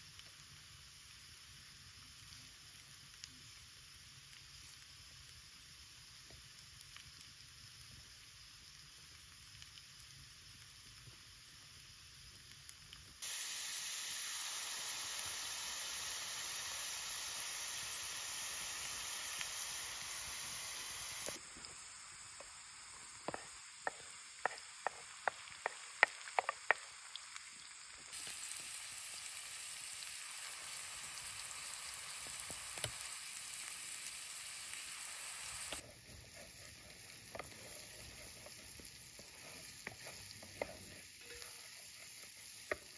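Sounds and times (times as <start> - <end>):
potatoes sizzling in a pan: 0.0 - 42.9
wooden spatula stirring pan: 23.2 - 26.8, 35.8 - 42.9.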